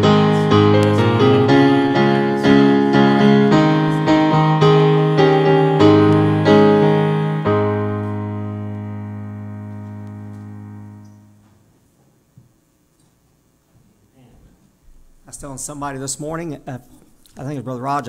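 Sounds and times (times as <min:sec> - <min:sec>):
grand piano chords: 0:00.0 - 0:12.0.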